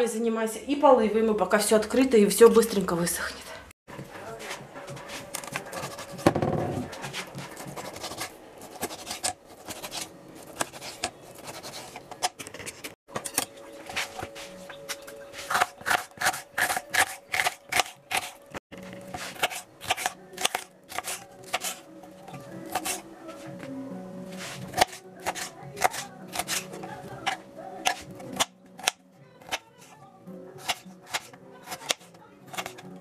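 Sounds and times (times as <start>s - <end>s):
knife chopping on plastic board: 5.4s - 12.8s, 24.7s - 26.6s, 30.6s - 32.9s.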